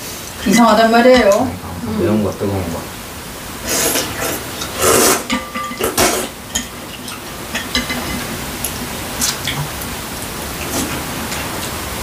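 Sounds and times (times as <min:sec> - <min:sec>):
utensils clinking on glass bowls: 0:05.0 - 0:08.3.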